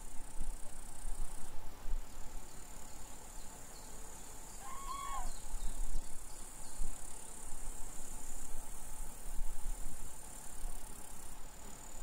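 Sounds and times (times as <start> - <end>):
insects chirring: 0.0 - 12.0
short bird call: 4.6 - 5.4.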